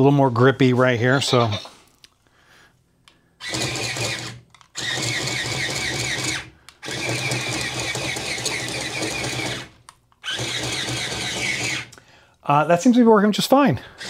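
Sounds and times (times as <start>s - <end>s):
toy robot motor and gears clattering: 3.4s - 12.0s.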